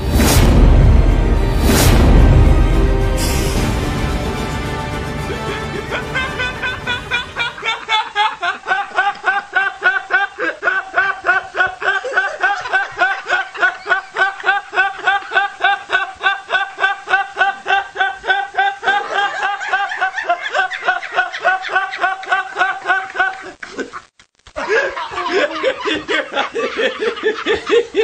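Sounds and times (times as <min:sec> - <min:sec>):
man giggling: 0:05.2 - 0:28.0.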